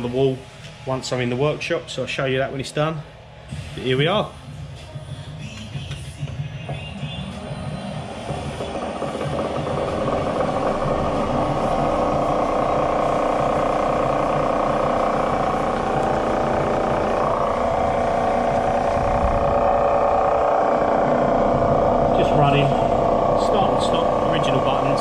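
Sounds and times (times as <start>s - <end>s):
grinder motor running: 8.2s - 25.0s.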